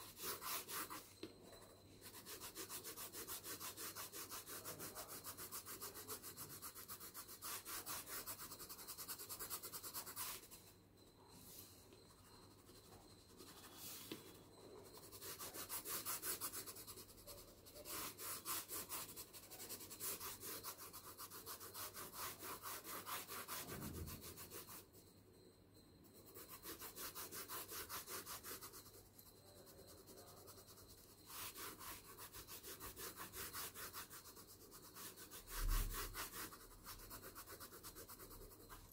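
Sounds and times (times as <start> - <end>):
pencil shading on paper: 0.0 - 10.7, 11.4 - 25.0, 26.1 - 38.9.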